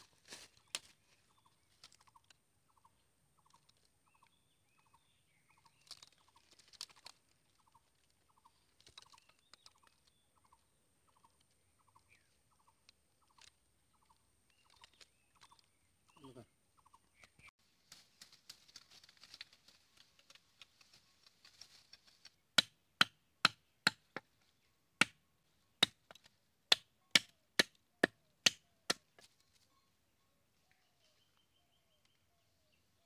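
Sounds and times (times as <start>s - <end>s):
sharp rustles and snaps: 5.6s - 10.2s, 17.2s - 22.4s.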